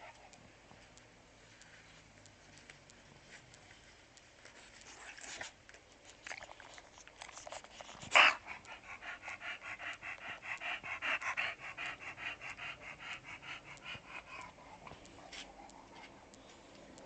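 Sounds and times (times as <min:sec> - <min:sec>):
dog panting rapidly: 0:07.2 - 0:17.0.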